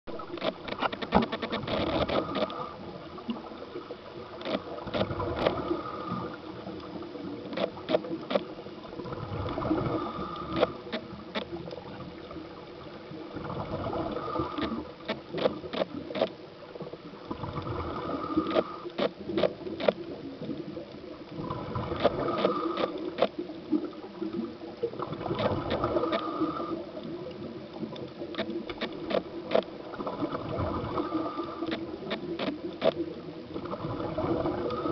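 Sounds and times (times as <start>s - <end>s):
sharp clicks and crackles: 0.1s - 2.6s, 4.3s - 6.2s, 6.8s - 8.6s, 10.4s - 12.0s, 14.1s - 16.4s, 18.4s - 23.5s, 25.2s - 26.4s, 27.0s - 30.2s, 31.0s - 33.8s
regulator bubbles gurgling underwater: 0.1s - 34.9s.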